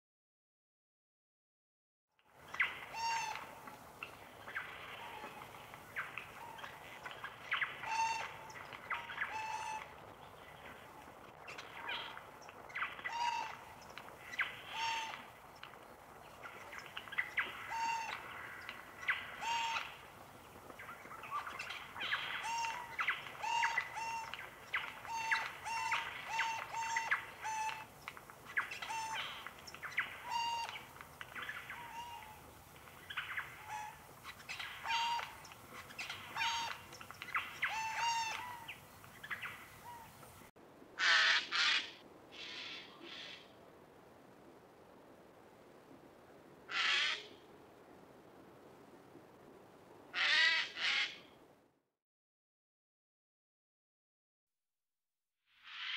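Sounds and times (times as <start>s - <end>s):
birds calling: 2.4s - 43.6s, 50.2s - 51.3s.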